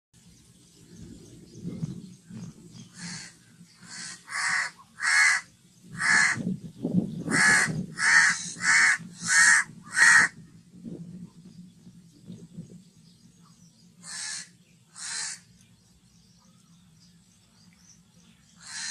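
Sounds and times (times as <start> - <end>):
crow cawing: 3.0 - 6.4, 7.3 - 10.4, 14.0 - 15.5, 18.6 - 18.9.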